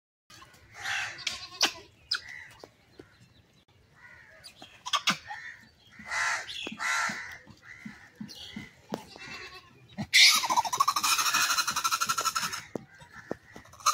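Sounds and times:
harsh rasping animal calls: 4.0 - 13.9.

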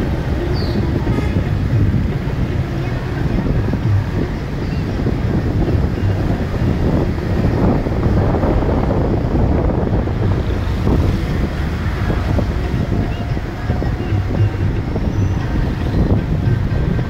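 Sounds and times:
car road noise: 0.0 - 17.0
wind buffeting microphone: 0.0 - 17.0.

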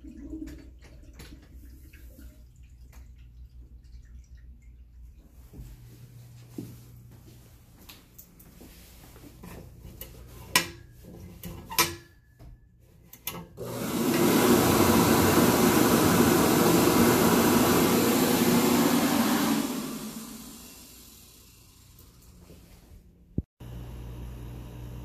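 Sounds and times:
hand dryer blowing: 13.6 - 23.5.

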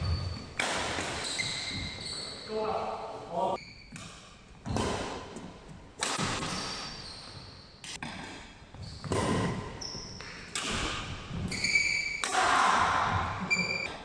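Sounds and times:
shoe squeaks: 0.0 - 0.6, 1.2 - 2.8, 3.6 - 4.0, 6.4 - 7.9, 8.8 - 9.1, 9.7 - 10.4, 11.5 - 12.2, 13.4 - 14.0
rackets hitting shuttlecock: 0.1 - 1.9, 3.9 - 7.0, 7.8 - 13.8.

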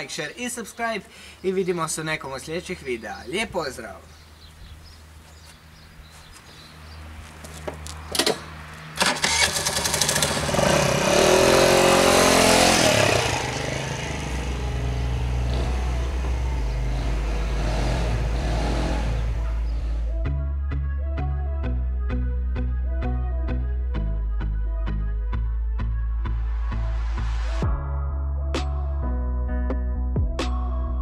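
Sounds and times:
scooter engine revving: 8.1 - 20.2.

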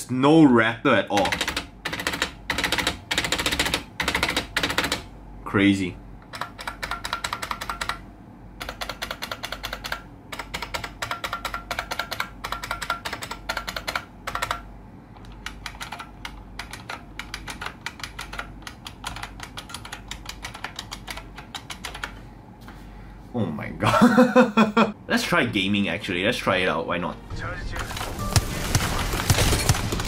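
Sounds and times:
fast keyboard typing clicks: 1.1 - 5.1, 6.2 - 8.0, 8.6 - 22.2.

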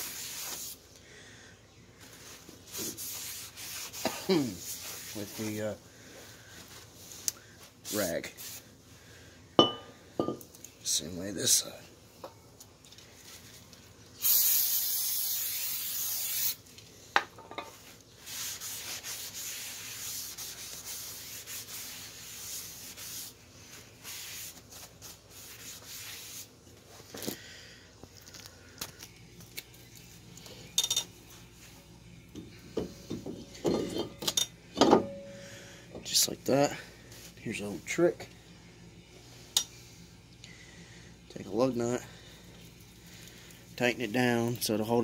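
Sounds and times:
aerosol spray burst: 14.2 - 16.6
rag wiping metal: 18.2 - 26.5.

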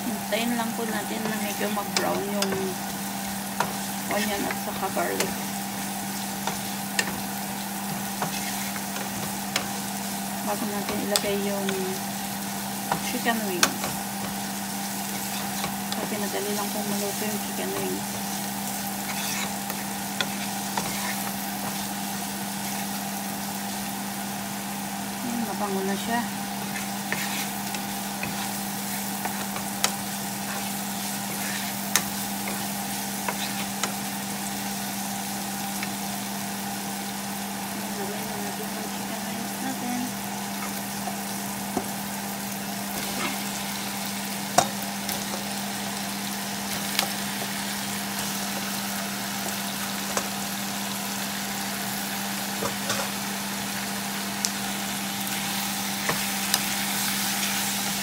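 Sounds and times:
onions sizzling in hot oil: 0.0 - 58.0
wooden spatula stirring: 1.1 - 23.0, 26.5 - 34.6.

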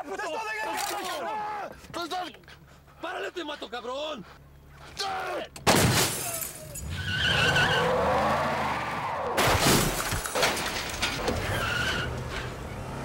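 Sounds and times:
shattering crash: 5.7 - 6.9, 9.4 - 11.6
tyres squealing: 6.2 - 9.2, 11.0 - 12.6.

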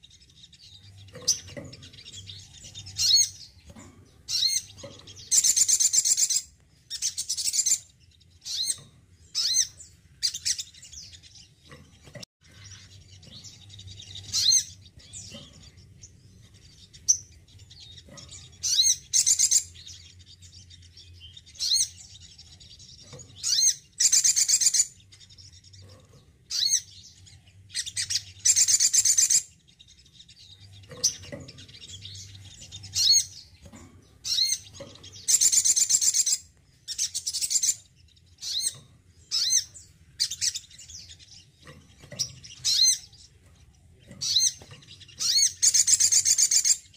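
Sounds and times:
sunbird chirping twitters: 0.0 - 46.9.

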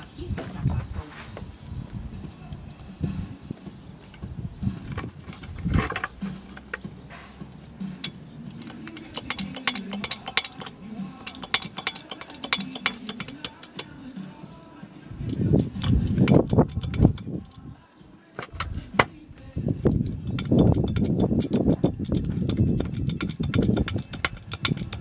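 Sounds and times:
hydraulic jack metal clicks: 8.0 - 14.0, 15.2 - 17.6, 20.0 - 25.0.

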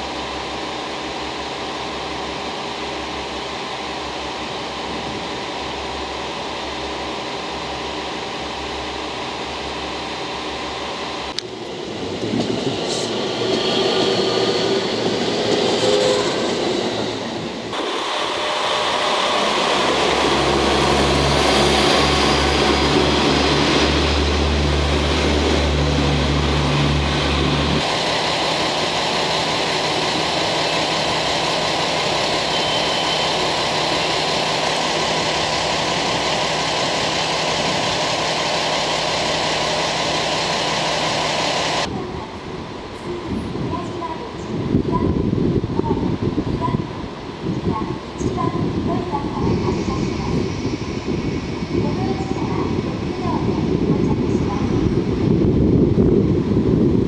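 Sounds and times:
wheel and rail noise: 0.0 - 42.2
diesel train engine: 0.0 - 57.0.

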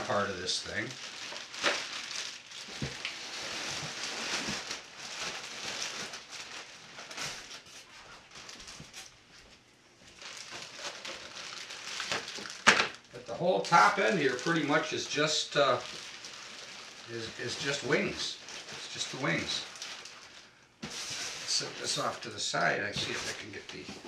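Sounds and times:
plastic bags rustling: 0.0 - 23.8.

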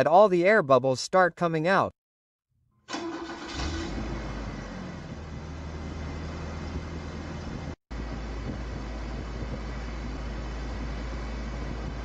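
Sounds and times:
starter motor whine: 2.9 - 4.4
truck engine idling: 2.9 - 12.0.

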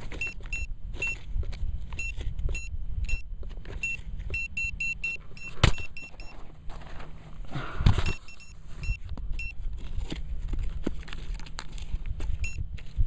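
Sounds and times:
metal detector pinpointer beeping: 0.1 - 1.3, 1.9 - 6.4, 8.0 - 9.6, 12.4 - 12.6.

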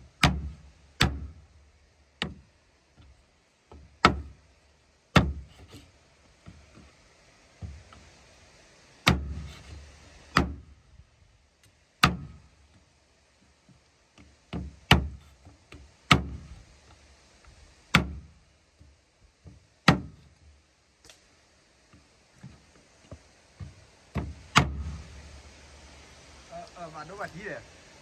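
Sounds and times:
cleaver chopping meat on wood: 0.2 - 1.3, 12.0 - 12.3, 14.5 - 15.2.

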